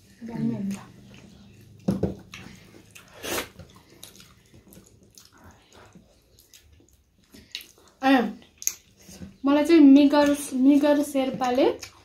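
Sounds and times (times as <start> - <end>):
close-up chewing: 0.2 - 9.4, 11.3 - 12.0
fingers squelching wet food: 0.7 - 9.4.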